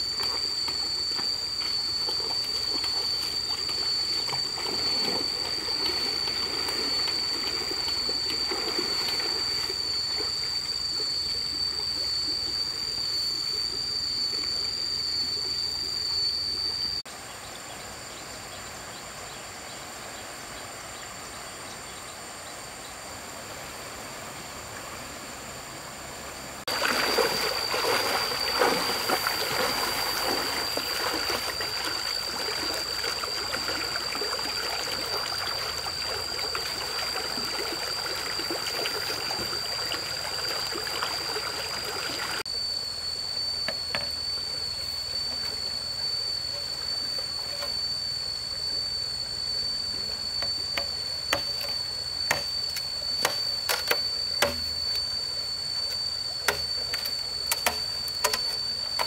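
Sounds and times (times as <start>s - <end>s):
trickling water: 0.0s - 12.6s, 26.7s - 42.5s
steady high-pitched tone: 0.0s - 59.0s.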